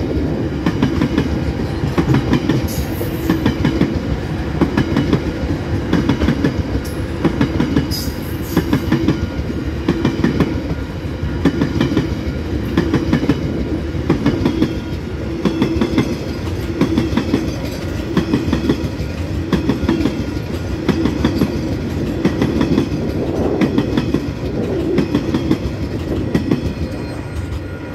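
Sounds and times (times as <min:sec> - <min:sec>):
train wheels clattering on track: 0:00.0 - 0:27.9.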